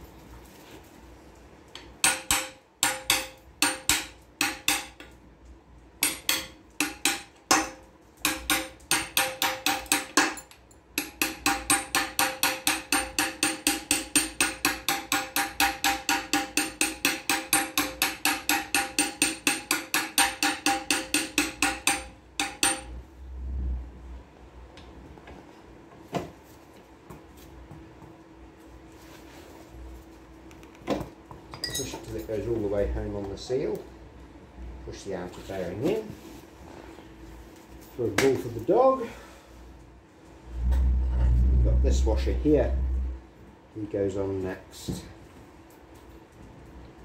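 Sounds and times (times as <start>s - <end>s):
hammer striking ringing metal: 2.0s - 5.0s, 6.0s - 23.0s.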